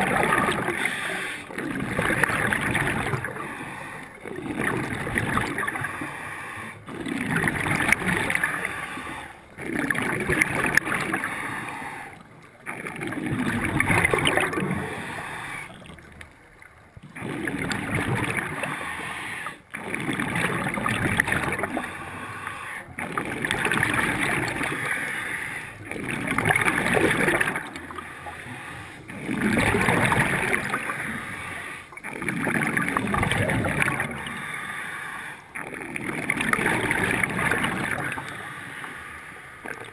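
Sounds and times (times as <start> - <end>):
exhaled air bubbling: 0.0 - 39.9
regulator hiss on inhale: 3.3 - 4.2, 14.8 - 15.8, 18.6 - 19.6, 21.9 - 22.9, 34.2 - 35.6, 38.2 - 39.8.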